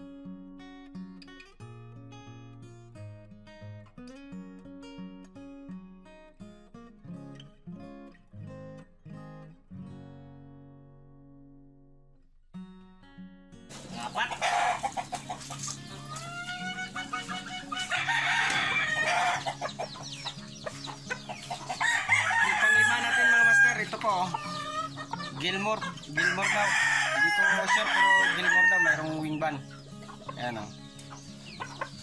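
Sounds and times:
plucked acoustic guitar music: 0.0 - 32.0
chickens: 13.7 - 32.0
rooster crowing: 14.0 - 15.2, 15.9 - 19.8, 21.7 - 24.9, 26.1 - 29.1.

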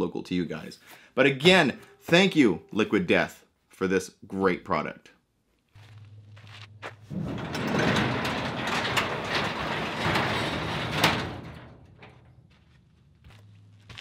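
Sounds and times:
garage door rattling: 7.0 - 12.5
garage door clank: 7.1 - 12.4.

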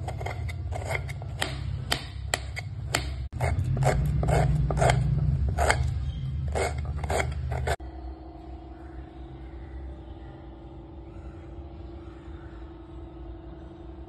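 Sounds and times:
knife cutting vegetables: 0.0 - 7.8
steady low hum: 0.0 - 14.0.

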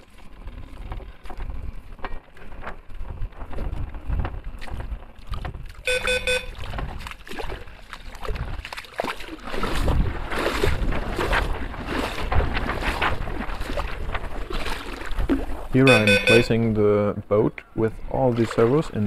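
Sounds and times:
wind rumbling on microphone: 0.0 - 16.8
water splashing from wading: 4.6 - 16.5, 18.2 - 19.0
short electronic beep: 5.9 - 6.6, 15.8 - 16.5.

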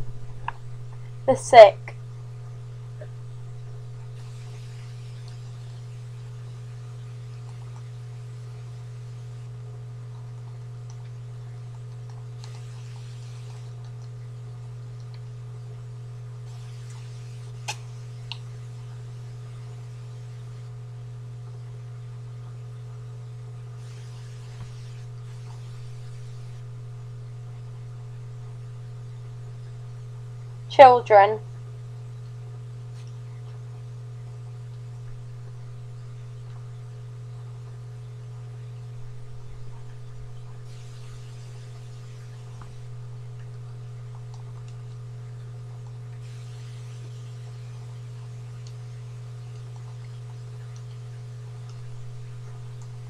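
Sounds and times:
low electrical hum: 0.0 - 53.0
faint clicks: 4.4 - 5.8, 10.1 - 14.2, 16.5 - 18.5, 48.6 - 53.0.

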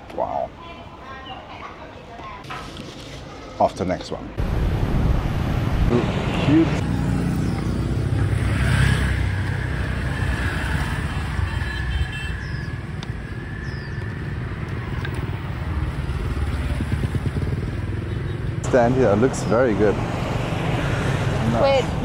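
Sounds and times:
motorbike and traffic rumble: 4.4 - 22.0.

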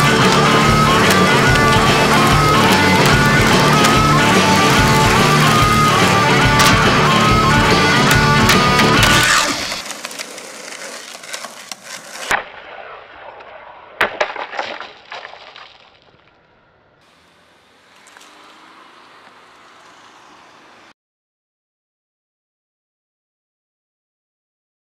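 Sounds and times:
loud knocks: 0.0 - 9.6
rock music: 0.0 - 9.8
skateboard deck clacking: 0.0 - 12.4
skateboard wheels rolling: 0.0 - 13.6, 17.0 - 20.9.

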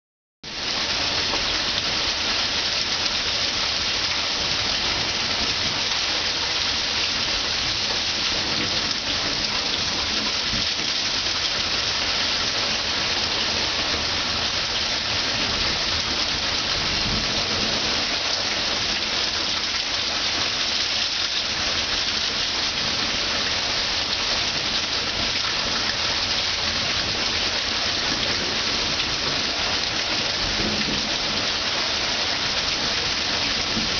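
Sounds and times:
heavy rain on street: 0.4 - 33.9.

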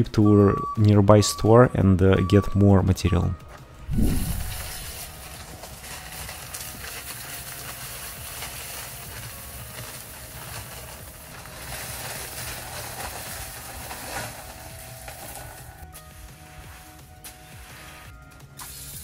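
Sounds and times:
concrete pouring with gritty hiss: 3.9 - 19.0.

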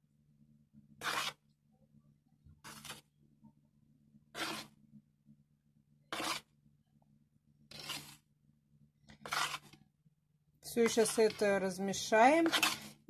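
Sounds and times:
flour scraped from bowl: 1.0 - 1.5, 2.6 - 3.1, 4.3 - 4.8, 6.1 - 6.6, 7.7 - 8.3, 9.1 - 9.8, 10.7 - 13.0.

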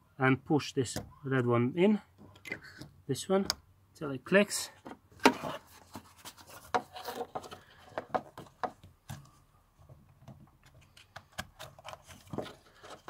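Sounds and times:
rubber cover rubbing and scraping: 5.1 - 9.3.

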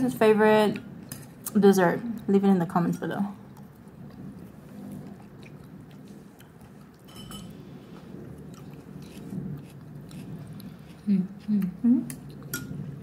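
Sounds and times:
person chewing: 3.4 - 13.0.

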